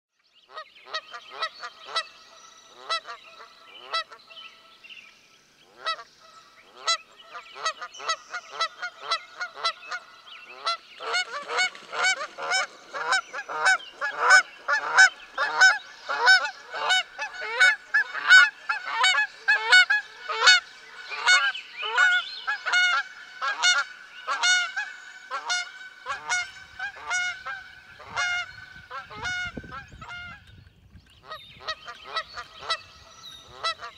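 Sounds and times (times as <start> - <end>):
geese honking: 7.6 - 30.4.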